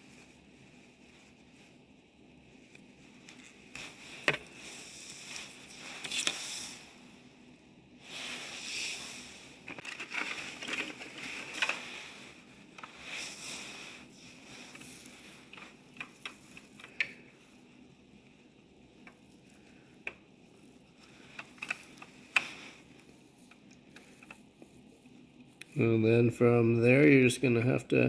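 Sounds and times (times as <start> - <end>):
plastic rustling: 8.2 - 25.6.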